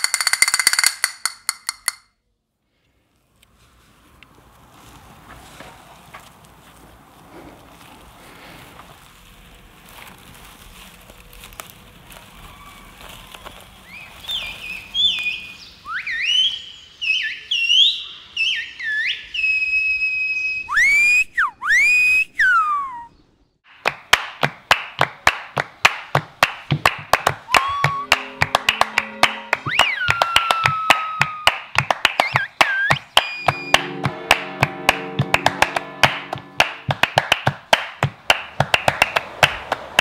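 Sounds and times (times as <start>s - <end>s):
finger whistling: 15.9s - 23.2s, 27.5s - 33.9s.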